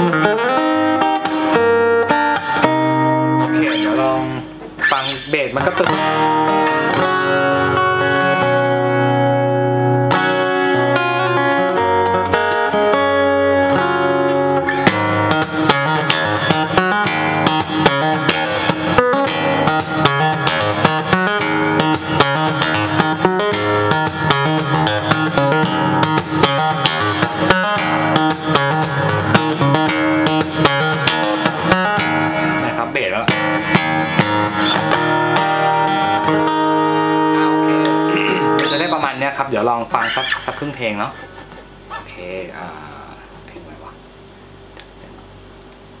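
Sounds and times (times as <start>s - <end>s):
fingerstyle acoustic guitar: 0.0s - 42.2s.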